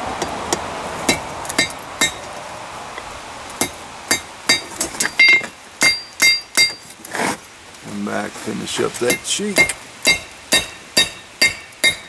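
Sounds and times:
hammer ringing on anvil: 5.2s - 6.8s, 9.1s - 12.0s.

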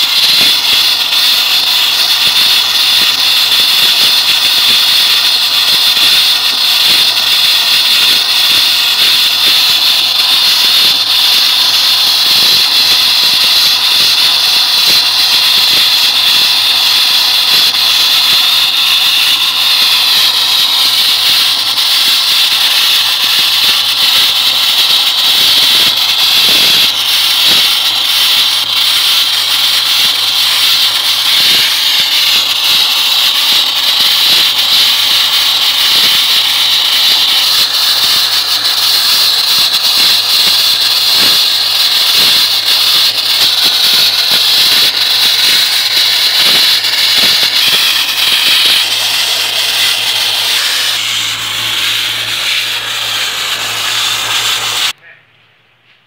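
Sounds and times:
blasting nozzle hissing: 0.0s - 55.0s.

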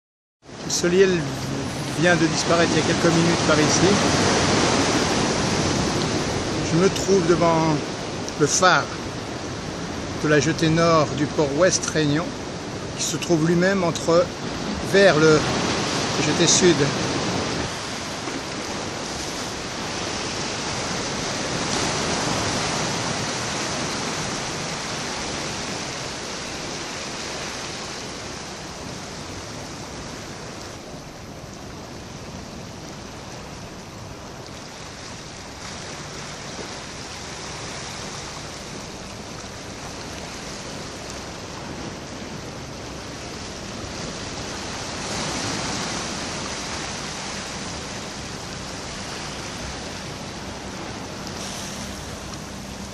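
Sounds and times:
sea surf washing against rocks: 0.5s - 52.9s.

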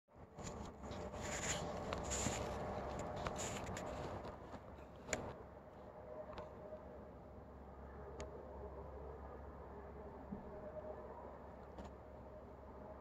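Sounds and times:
hands rubbing on camera: 0.4s - 5.2s.

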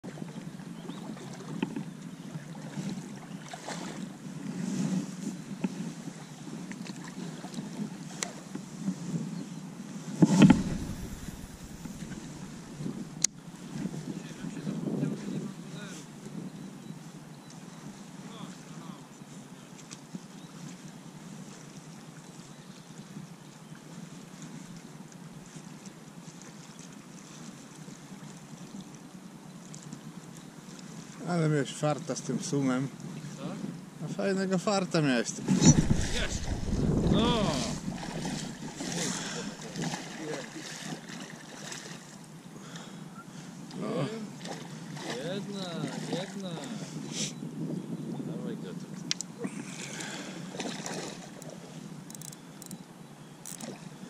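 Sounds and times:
water lapping around boat: 0.0s - 33.8s, 35.4s - 47.2s, 49.0s - 52.8s
wind buffeting microphone: 10.2s - 16.7s, 35.5s - 40.0s.

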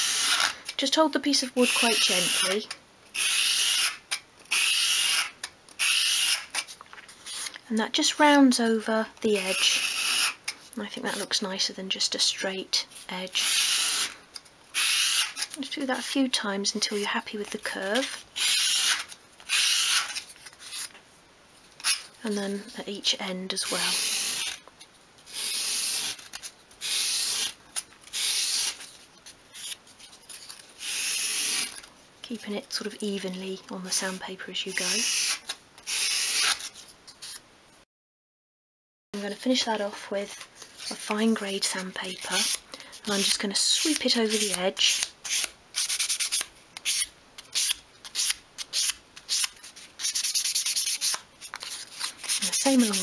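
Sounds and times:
sandpaper scraping on wood: 42.3s - 53.0s
wood rasping on sandpaper: 52.2s - 53.0s.

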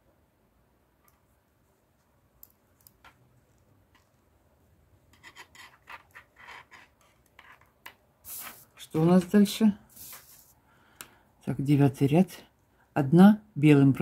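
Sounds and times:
knitting needles clicking: 2.2s - 4.2s
yarn rubbing on needles: 5.1s - 10.6s.

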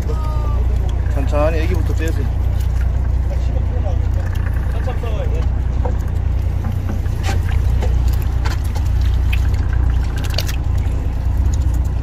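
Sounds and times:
boat engine droning: 0.0s - 12.0s
water sloshing on deck: 0.0s - 12.0s
water splashing: 0.0s - 12.0s.

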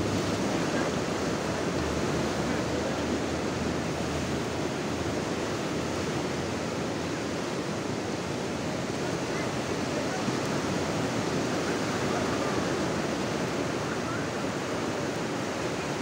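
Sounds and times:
ocean surf breaking: 0.0s - 16.0s.

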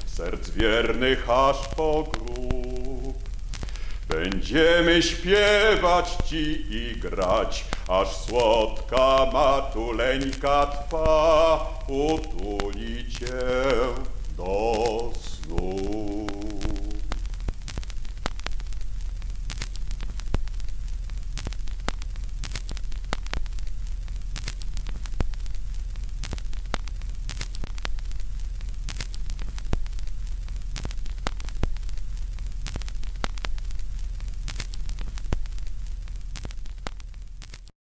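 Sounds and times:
low hum: 0.0s - 22.4s
record clicks and pops: 0.0s - 37.7s
steady hiss: 0.0s - 37.7s.

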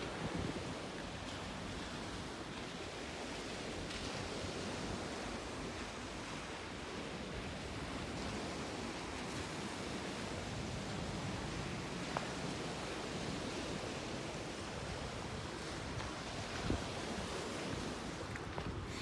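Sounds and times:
sea waves on shore: 0.0s - 19.0s
wind: 0.0s - 19.0s.

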